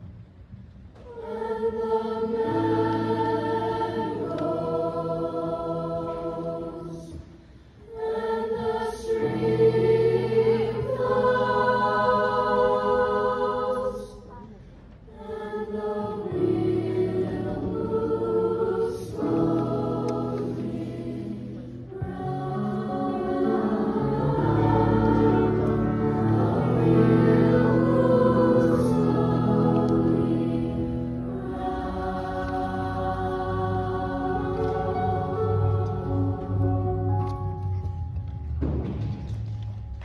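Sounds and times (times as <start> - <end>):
mixed choir singing: 1.0 - 14.4, 15.0 - 37.4
digital piano accompaniment: 16.2 - 40.0.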